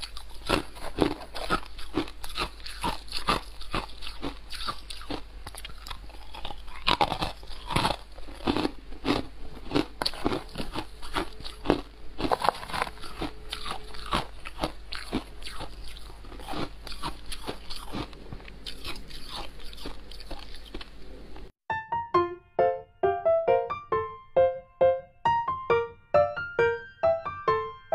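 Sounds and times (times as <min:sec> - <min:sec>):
chewing crunchy ice: 0:00.0 - 0:21.5.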